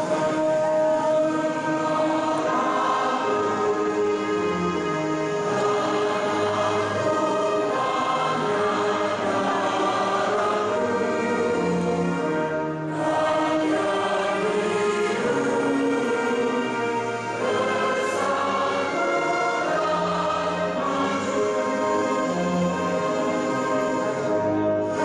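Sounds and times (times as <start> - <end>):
choir singing: 0.0 - 25.0
orchestral accompaniment: 0.0 - 25.0.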